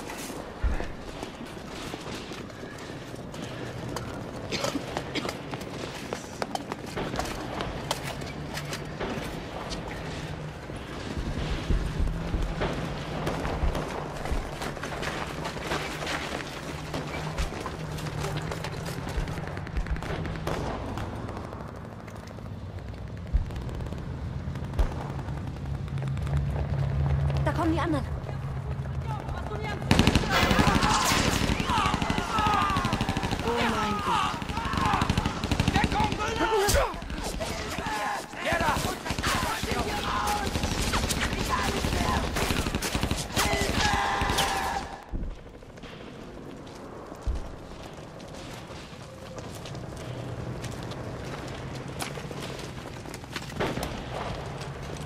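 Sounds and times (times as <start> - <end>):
distant gunfire and shelling rumble: 0.6 - 27.5, 28.7 - 55.0
rapid gunfire: 19.0 - 27.2, 29.2 - 45.6
men shouting: 30.4 - 40.6, 43.2 - 45.0.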